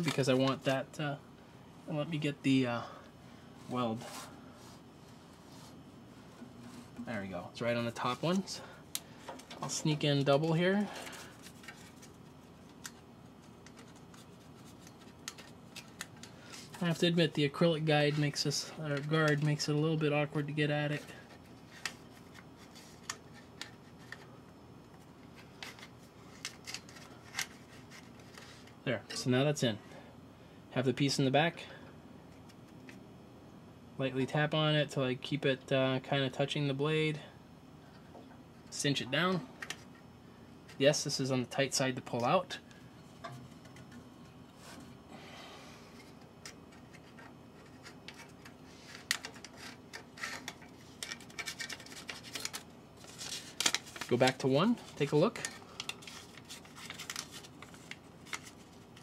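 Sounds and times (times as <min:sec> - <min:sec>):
paper rustling: 0:46.8 - 0:59.0.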